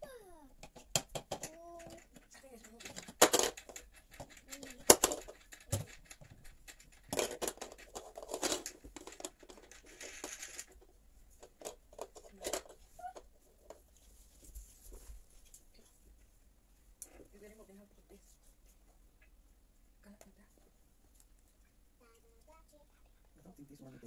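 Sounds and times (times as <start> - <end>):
rustling: 0.3 - 19.3.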